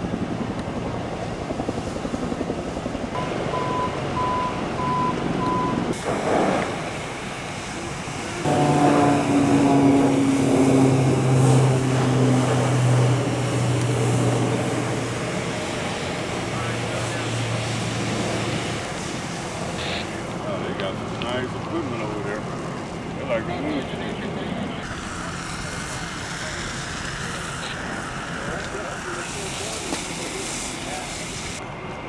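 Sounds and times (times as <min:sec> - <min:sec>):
aircraft engines droning: 0:00.0 - 0:32.0
steady engine hum: 0:00.0 - 0:32.0
short beeps: 0:03.2 - 0:05.9
hose spraying water: 0:05.9 - 0:23.1, 0:24.8 - 0:31.6.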